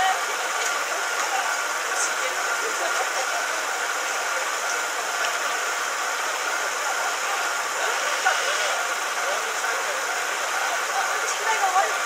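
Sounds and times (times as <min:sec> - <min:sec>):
idling engines and traffic: 0:00.0 - 0:12.0
scattered voices: 0:00.0 - 0:12.0.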